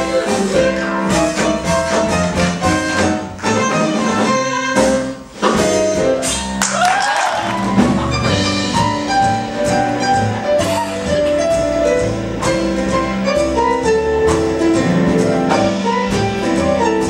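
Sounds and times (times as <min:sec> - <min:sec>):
orchestra playing jazzy show music: 0:00.0 - 0:17.0.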